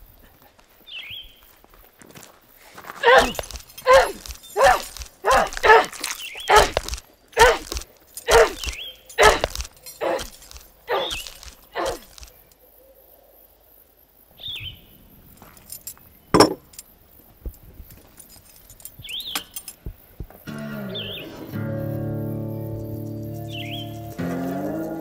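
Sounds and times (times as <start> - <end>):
hard blows of hand tool: 3.0 - 12.2
short bird chirp: 20.9 - 21.4.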